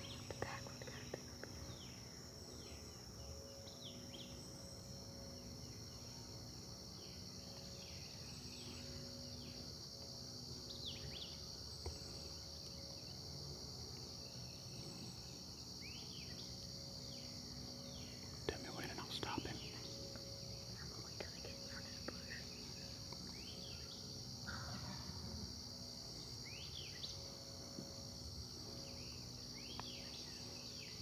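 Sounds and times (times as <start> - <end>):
insect chorus: 0.0 - 31.0
songbirds calling: 14.0 - 31.0.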